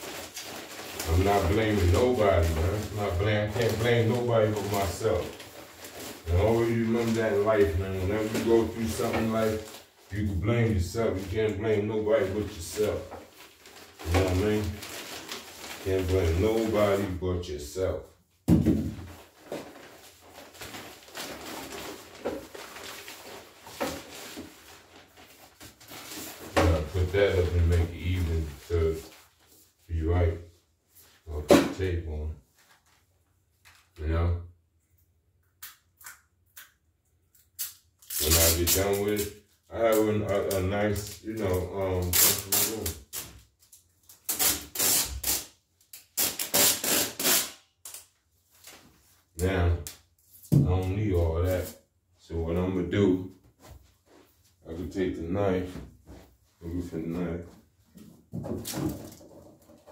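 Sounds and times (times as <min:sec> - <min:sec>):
material rustling: 0:00.0 - 0:10.2, 0:19.0 - 0:29.9
tape pulled off roll: 0:46.1 - 0:47.6.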